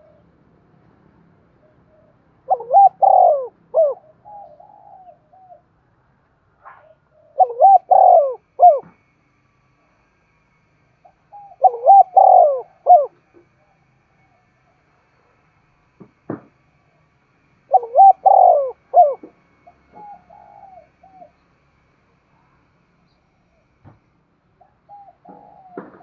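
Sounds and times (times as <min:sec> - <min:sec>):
dove cooing: 0:00.0 - 0:00.3, 0:01.6 - 0:05.7, 0:06.8 - 0:08.9, 0:11.0 - 0:13.3, 0:17.7 - 0:21.4, 0:24.6 - 0:26.0.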